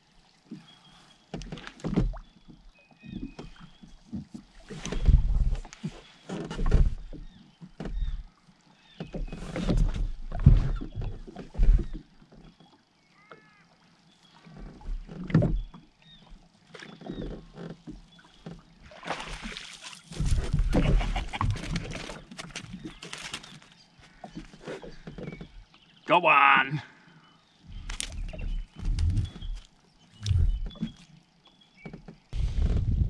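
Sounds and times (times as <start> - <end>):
water slapping against hull: 14.3 - 25.7
fish splashing: 18.8 - 23.5.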